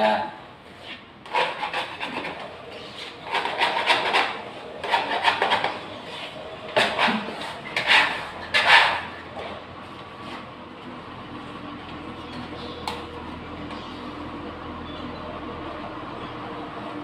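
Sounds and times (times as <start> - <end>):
wallpaper scraping and tearing: 0.8 - 9.2.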